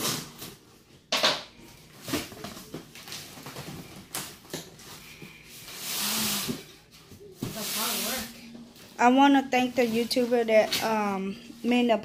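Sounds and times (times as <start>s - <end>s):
packing tape pulled off cardboard: 0.0s - 0.6s, 1.9s - 6.7s.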